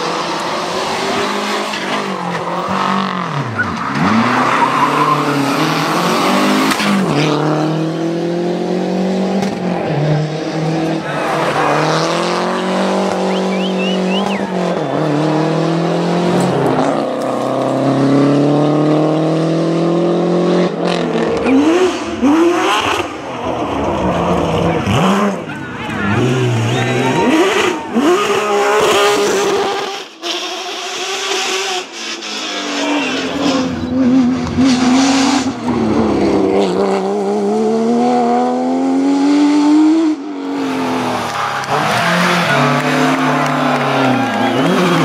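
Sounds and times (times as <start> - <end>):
rally car engines revving: 0.0 - 45.0.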